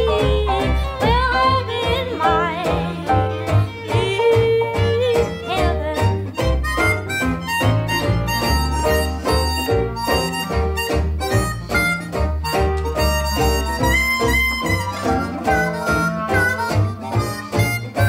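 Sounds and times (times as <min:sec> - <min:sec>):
band music with steady bass beat: 0:00.0 - 0:18.0.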